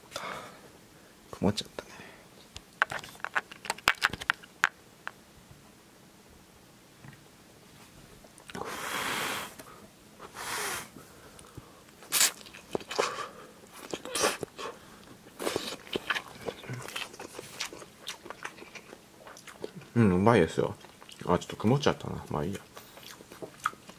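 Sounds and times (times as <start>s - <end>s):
chewing: 12.0s - 20.0s, 20.7s - 23.9s.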